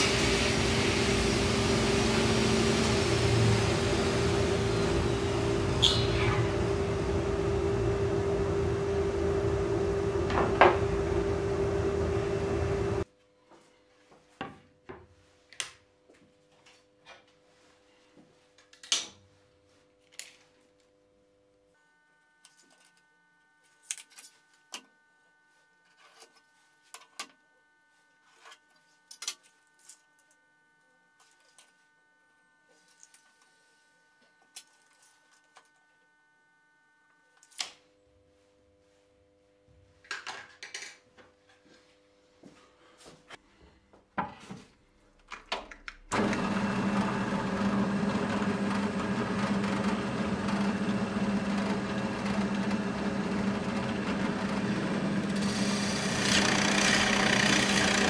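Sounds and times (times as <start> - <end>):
table saw running: 0.0 - 13.0, 46.1 - 58.0.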